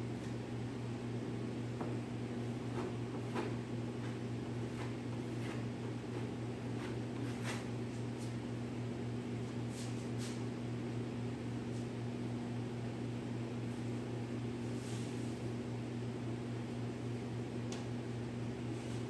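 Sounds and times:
low electrical hum: 0.0 - 19.0
faint scuffs: 6.8 - 8.4, 9.7 - 10.5.

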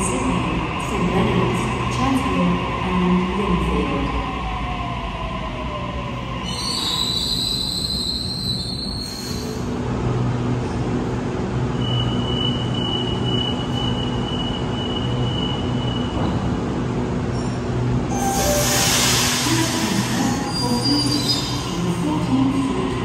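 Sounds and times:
train wheels squealing: 6.4 - 9.7, 11.7 - 16.2, 17.3 - 21.8.

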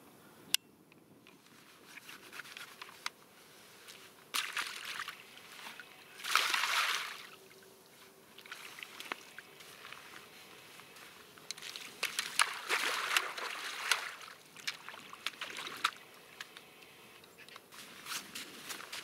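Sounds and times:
water sloshing and splashing: 4.3 - 7.4, 8.3 - 16.6.

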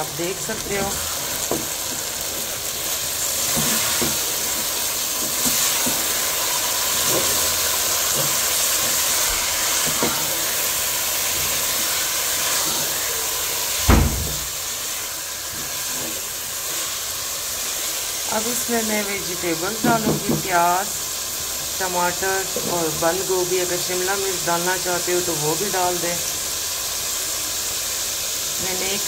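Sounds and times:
chicken sizzling in oil: 0.0 - 29.0
loud thump: 13.8 - 14.6.

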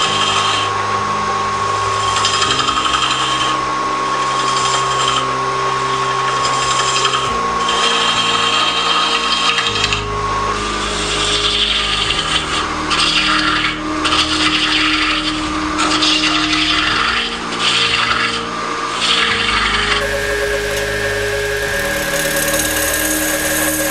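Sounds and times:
wood lathe motor hum: 1.8 - 23.9.

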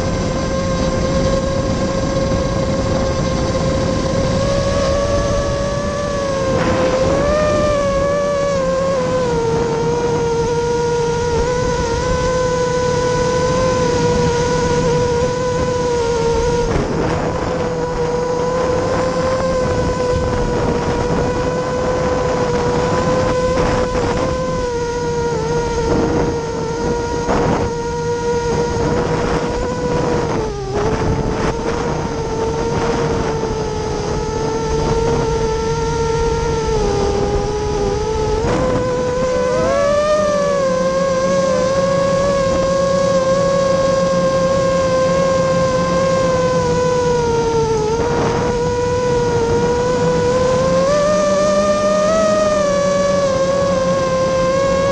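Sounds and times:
drone motors whining: 0.0 - 54.9
rush of air: 1.7 - 8.5.

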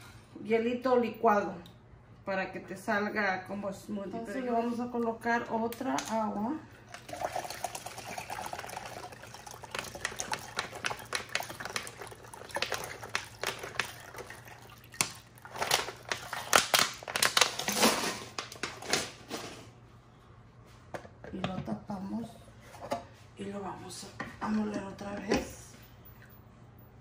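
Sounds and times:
water pouring into blender jar: 6.9 - 16.4
containers clicking and knocking: 6.9 - 19.0.

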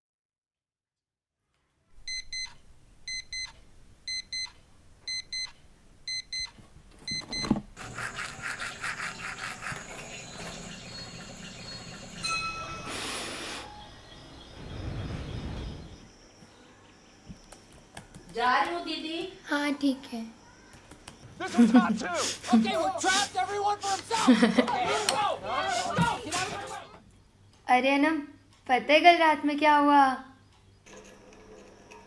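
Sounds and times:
electronic alarm beeping: 2.1 - 7.6
toothbrush scrubbing teeth: 7.8 - 12.2
hiss: 12.9 - 13.8.

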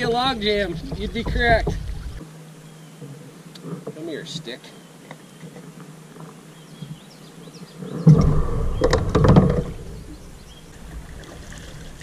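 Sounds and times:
low rumble: 0.0 - 2.2, 7.8 - 11.2.

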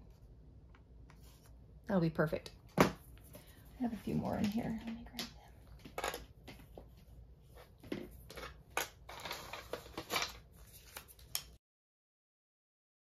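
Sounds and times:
cardstock rustling: 7.6 - 11.6.

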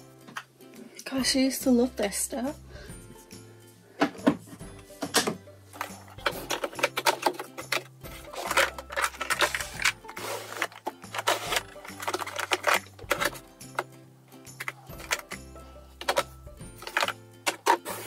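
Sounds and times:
plastic cases clicking and clacking: 5.0 - 15.4, 16.0 - 18.0.

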